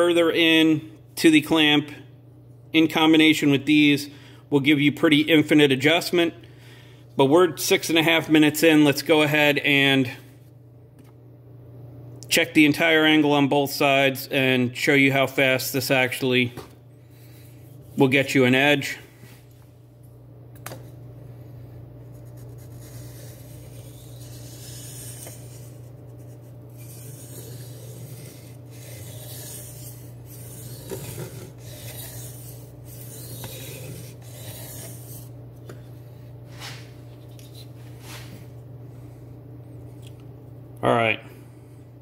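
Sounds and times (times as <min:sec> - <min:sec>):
knife scraping on sharpening stone: 0:26.7 - 0:35.3.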